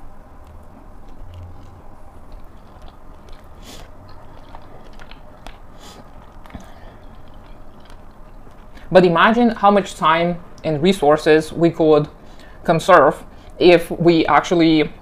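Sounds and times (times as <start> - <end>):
person chewing noodles: 0.1 - 8.9
wet mouth clicks and smacks: 0.4 - 8.9.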